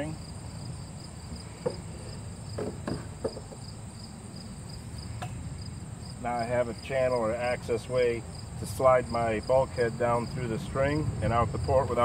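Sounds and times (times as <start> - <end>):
insects chirping: 0.0 - 12.0
faint knocks: 1.6 - 3.7.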